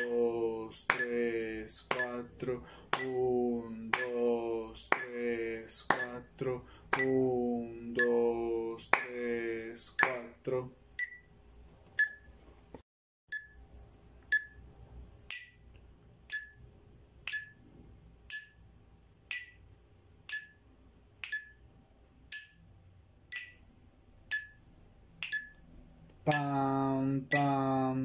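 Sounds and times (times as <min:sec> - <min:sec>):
metronome ticking: 0:00.0 - 0:00.3, 0:00.9 - 0:01.3, 0:01.9 - 0:02.3, 0:03.0 - 0:03.3, 0:03.9 - 0:05.3, 0:05.9 - 0:06.4, 0:07.0 - 0:07.2, 0:08.0 - 0:08.3, 0:09.0 - 0:09.2, 0:10.0 - 0:10.3, 0:13.3 - 0:13.6, 0:14.3 - 0:14.6, 0:15.3 - 0:15.6, 0:16.3 - 0:16.6, 0:17.3 - 0:17.6, 0:18.3 - 0:18.6, 0:19.3 - 0:20.6, 0:21.2 - 0:21.6, 0:22.3 - 0:22.7, 0:23.3 - 0:23.7, 0:24.3 - 0:25.6, 0:26.3 - 0:27.7.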